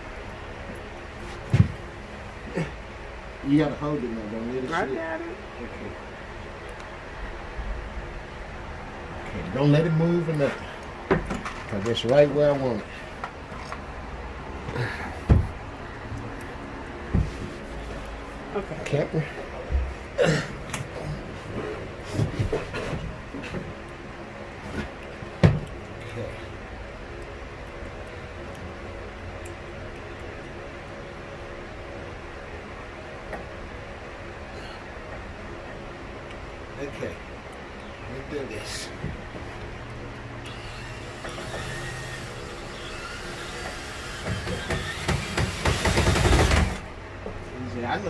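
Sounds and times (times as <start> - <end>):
power drill driving screw: 40.5 - 46.8.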